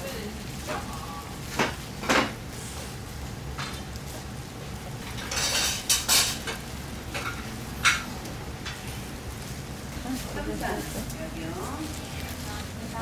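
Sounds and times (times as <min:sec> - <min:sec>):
low kitchen hum: 0:00.0 - 0:13.0
gloved hands rustling and scraping: 0:08.8 - 0:13.0.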